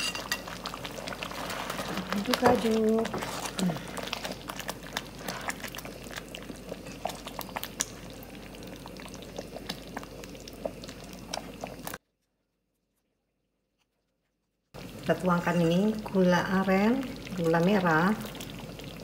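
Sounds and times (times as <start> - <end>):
ladle stirring thick sauce: 0.0 - 12.0.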